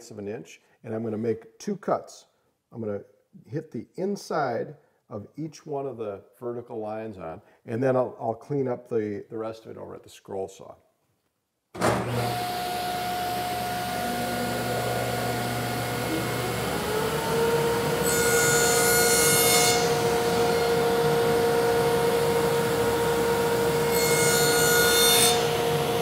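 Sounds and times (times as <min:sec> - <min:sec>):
table saw running: 0:11.8 - 0:26.0
saw blade cutting wood: 0:12.0 - 0:26.0.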